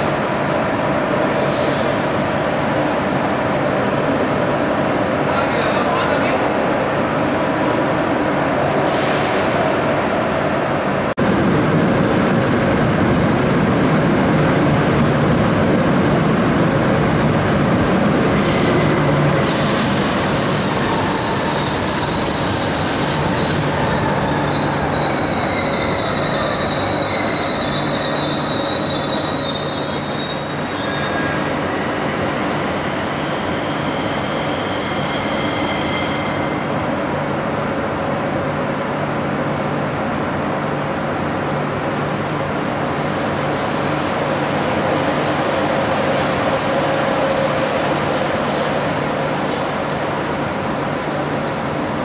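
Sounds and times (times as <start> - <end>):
train wheels squealing: 18.4 - 32.0, 32.8 - 36.7.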